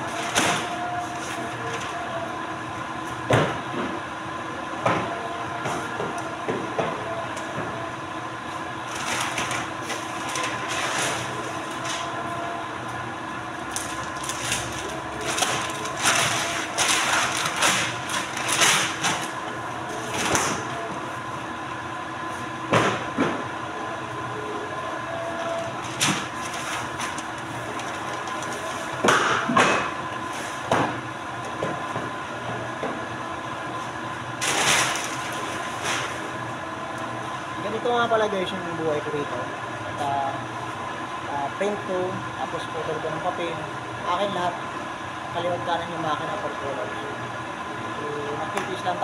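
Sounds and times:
paper cutter humming: 0.0 - 40.5.

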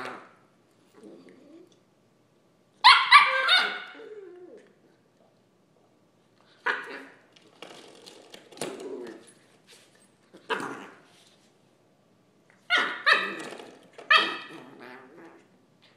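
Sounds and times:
puppy barking: 2.8 - 4.0, 12.7 - 13.5, 14.1 - 14.6.

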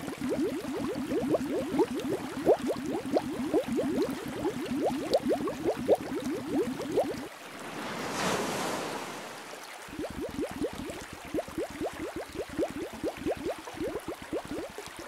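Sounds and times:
aquarium water bubbling: 0.0 - 7.8, 9.6 - 15.0
wave-like whoosh: 7.6 - 9.5.

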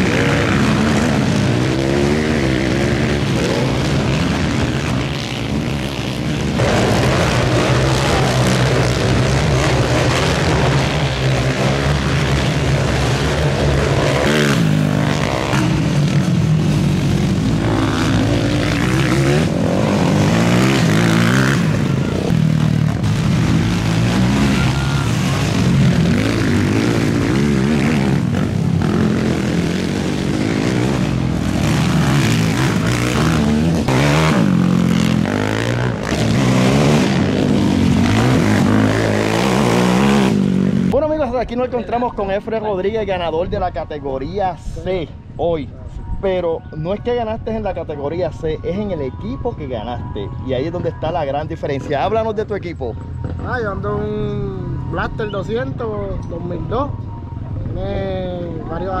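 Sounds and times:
quad engines racing: 0.0 - 47.4, 48.0 - 59.0.

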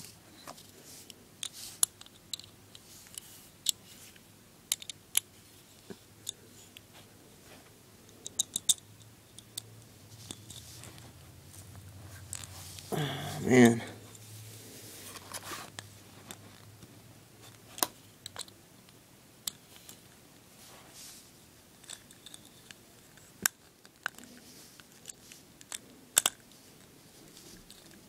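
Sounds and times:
small plastic parts clicking: 4.7 - 5.3, 8.2 - 8.8, 12.3 - 12.5, 21.8 - 26.4.

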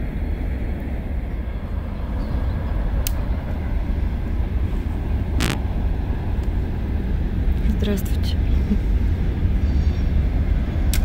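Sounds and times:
distant freight train rumbling: 0.0 - 10.9
sharp clicks: 5.4 - 5.6.

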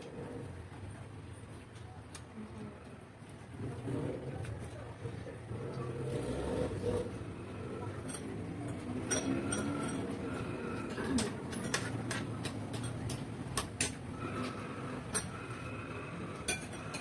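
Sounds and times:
chewing and handling noise: 1.4 - 17.0
spoons clinking on dishes: 8.1 - 14.0, 16.3 - 17.0.

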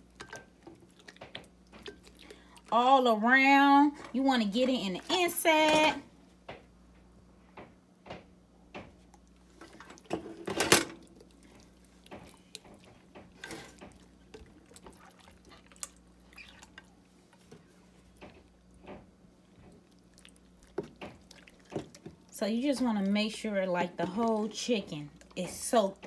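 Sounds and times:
wet squishing of chicken skin: 13.7 - 16.9.

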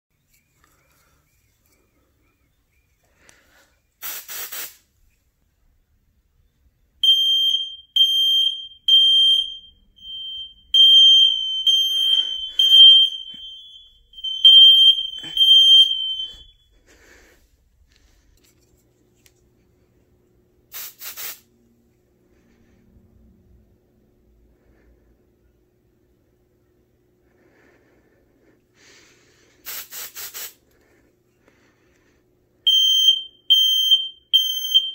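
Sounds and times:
aerosol spray hiss: 4.0 - 4.9, 20.7 - 21.5, 29.6 - 30.6
smoke alarm high-pitched beeps: 7.0 - 16.7, 32.7 - 34.9.

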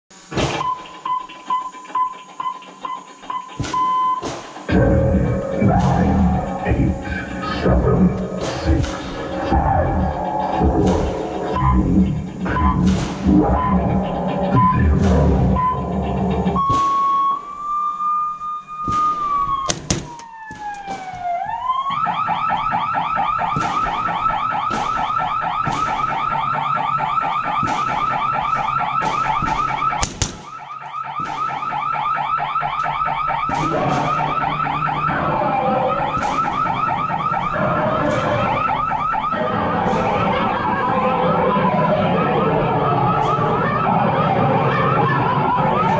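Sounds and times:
electronic siren warbling: 0.5 - 45.9
suppressed rifle shots: 19.7 - 21.1, 29.1 - 31.6.

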